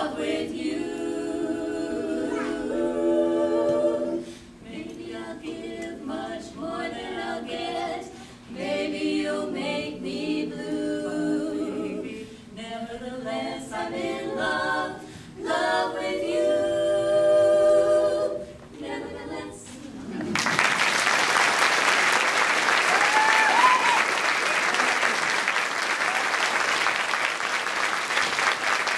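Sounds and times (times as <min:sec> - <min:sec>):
women singing a cappella harmony: 0:00.0 - 0:20.2.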